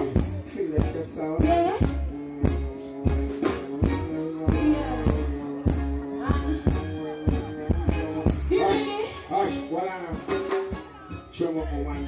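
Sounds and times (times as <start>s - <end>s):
drum beat: 0.0s - 8.9s
live band music: 0.0s - 12.0s.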